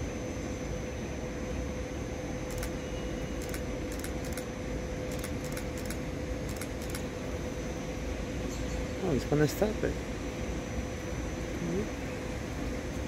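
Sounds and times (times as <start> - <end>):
train rumbling: 2.2 - 4.4, 5.1 - 13.0.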